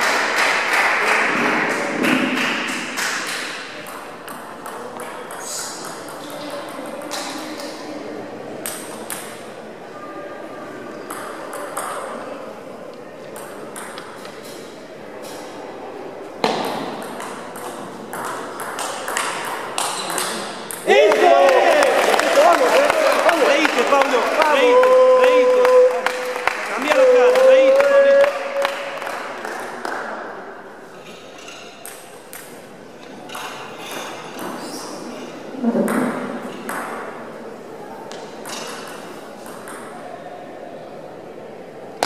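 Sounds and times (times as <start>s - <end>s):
table tennis ball hitting table and paddles: 1.2s - 7.8s, 8.6s - 9.5s, 11.0s - 12.3s, 13.3s - 15.5s, 16.4s - 21.3s, 31.3s - 34.9s, 35.7s - 37.2s, 38.1s - 40.0s.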